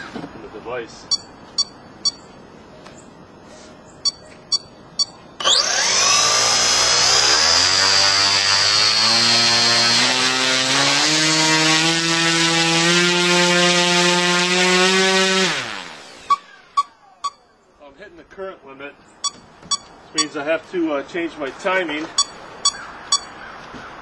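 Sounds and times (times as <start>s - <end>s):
electric motor propeller drone: 5.4s - 10.1s.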